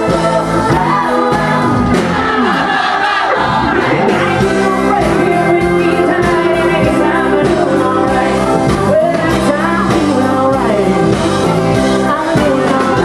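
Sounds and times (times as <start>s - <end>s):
live country band: 0.0s - 13.0s
woman singing: 4.0s - 13.0s.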